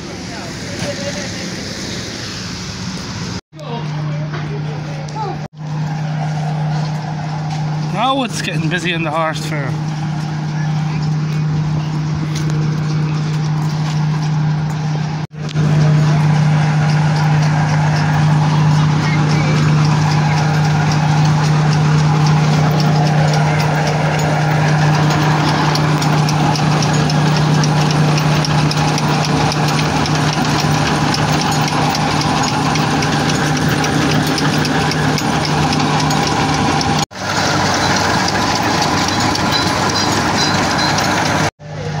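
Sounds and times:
threshing machine humming: 2.8s - 42.0s
fast even ticking: 15.4s - 41.5s.

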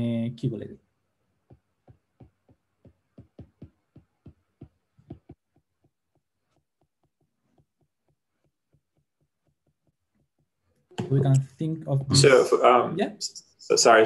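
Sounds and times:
stylus tapping on screen: 1.4s - 11.4s.

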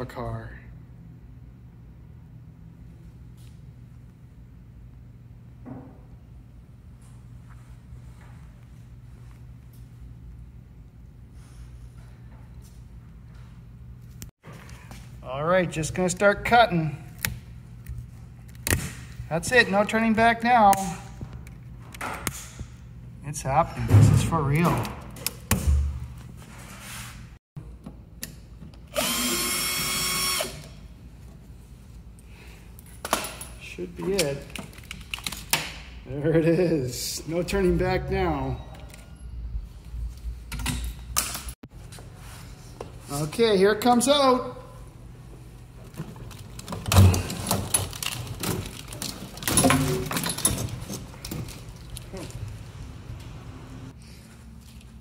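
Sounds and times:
power drill whine: 28.9s - 30.7s
wiring harness rattling: 45.9s - 52.6s.

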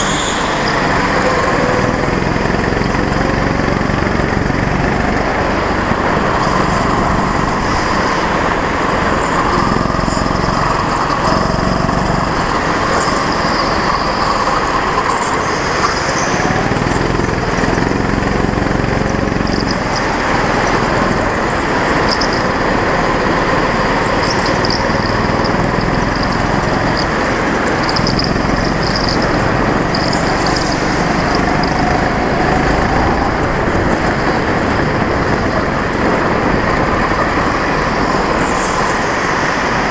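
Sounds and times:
go-kart engine running hard: 0.0s - 39.9s.

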